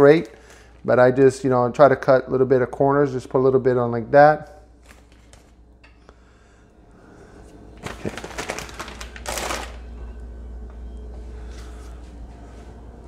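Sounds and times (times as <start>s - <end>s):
plastic bag crinkling: 0.0s - 0.9s, 7.8s - 9.9s.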